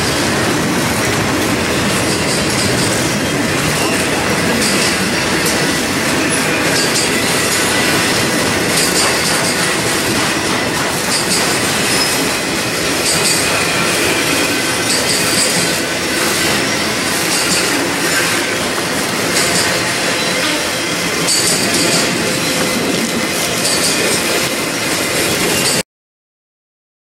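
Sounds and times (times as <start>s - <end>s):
freight train cars rolling: 0.0s - 25.8s.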